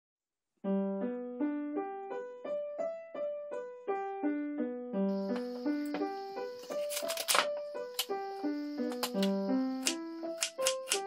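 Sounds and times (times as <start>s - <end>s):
simple piano melody: 0.6s - 11.0s
faint steady hiss: 7.7s - 10.4s.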